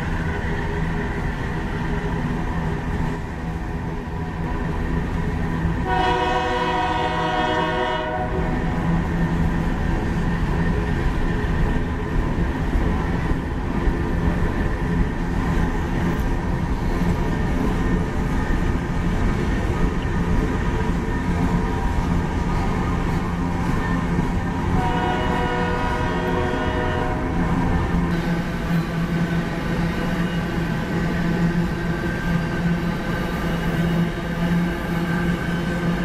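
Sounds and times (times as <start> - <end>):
train wheels rumbling on rails: 0.0 - 36.0
locomotive air horn: 5.8 - 8.5, 24.8 - 27.4.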